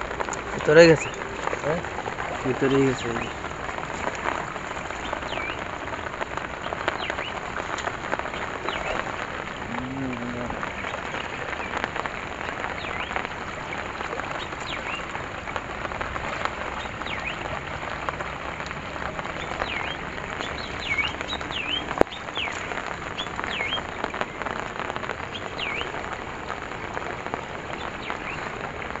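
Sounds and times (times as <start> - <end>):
rain hissing: 0.0 - 29.0
water rushing through a net: 0.0 - 29.0.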